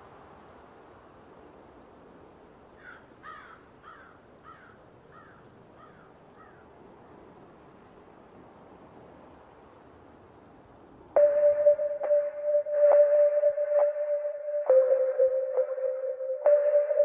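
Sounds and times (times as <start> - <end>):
faint outdoor hiss: 0.0 - 17.0
bird cawing: 2.8 - 6.6.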